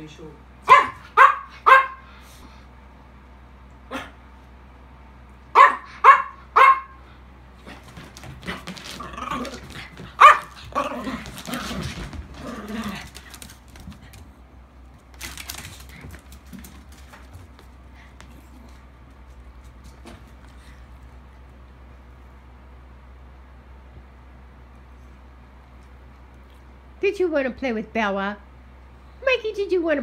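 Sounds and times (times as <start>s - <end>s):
dogs barking: 0.6s - 2.1s, 3.9s - 4.2s, 5.5s - 7.0s, 10.1s - 11.1s
dogs growling: 7.6s - 14.1s
dogs scuffling: 7.6s - 21.0s.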